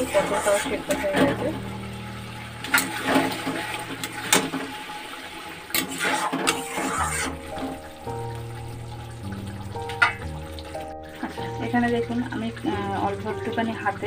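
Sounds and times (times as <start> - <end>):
thick gravy squelching and bubbling: 0.0 - 1.9, 5.7 - 14.0.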